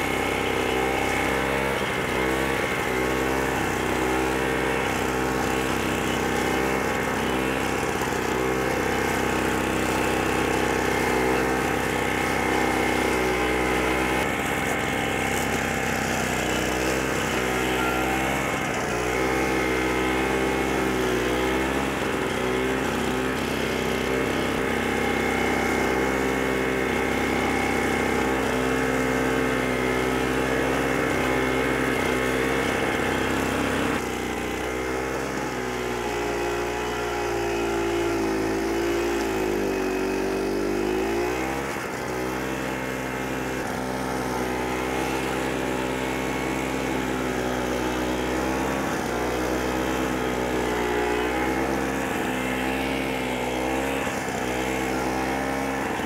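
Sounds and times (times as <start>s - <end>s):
mower engine running: 0.0s - 56.0s.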